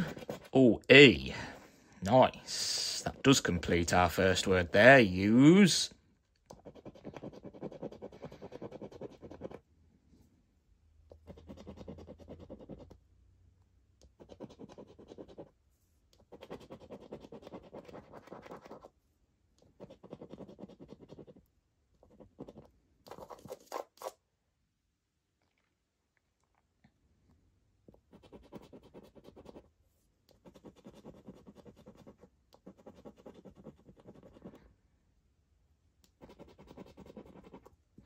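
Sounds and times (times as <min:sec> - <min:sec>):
coin scratching scratchcard: 0:00.0 - 0:00.5, 0:16.3 - 0:18.9, 0:30.4 - 0:34.5, 0:36.2 - 0:37.7.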